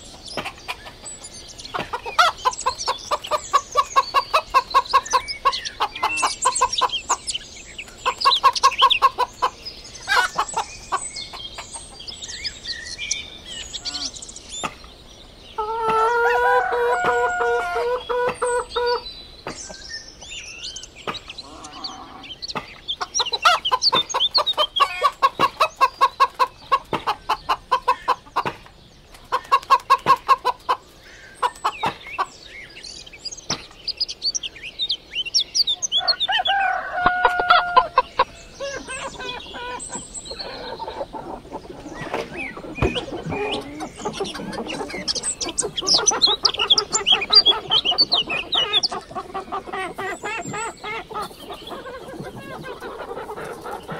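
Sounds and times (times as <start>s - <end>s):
chickens clucking and calling: 0.0s - 53.9s
high chirps: 42.3s - 52.6s.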